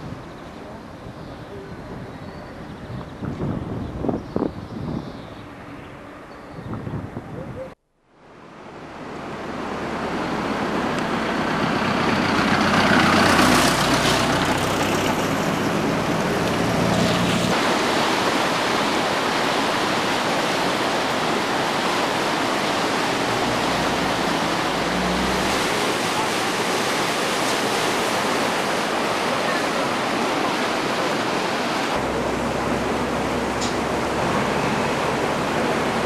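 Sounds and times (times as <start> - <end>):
river water rushing: 8.1 - 36.0.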